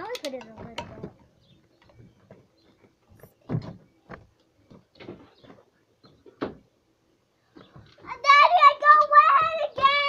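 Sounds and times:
knocks and bumps: 2.2 - 6.7.

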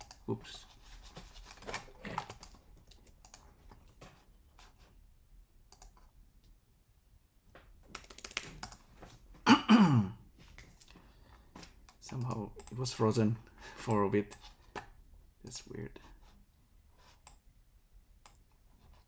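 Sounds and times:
keyboard keys clicking: 7.9 - 8.8.

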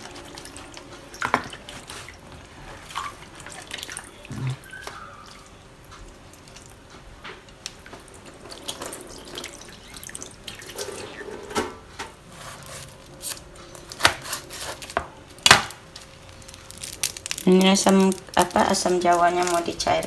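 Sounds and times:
tap water running into sink: 7.7 - 11.6.

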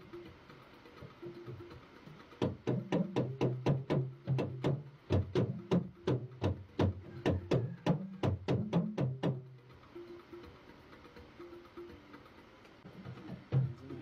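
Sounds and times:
talking drum struck with stick: 2.4 - 9.6, 12.9 - 14.0.

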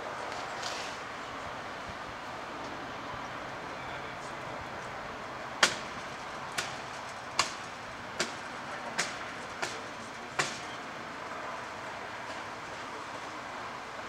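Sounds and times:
steady background noise: 0.0 - 14.0
hand tool striking wooden boards: 5.6 - 5.9, 7.4 - 7.6, 8.2 - 8.4, 9.0 - 10.7.

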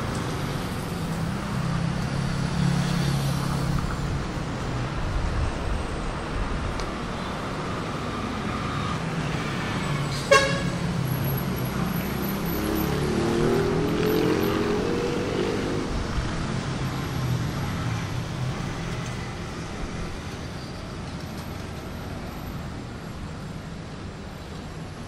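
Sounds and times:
traffic noise: 0.0 - 25.0
vehicle engine passing: 11.7 - 16.2.

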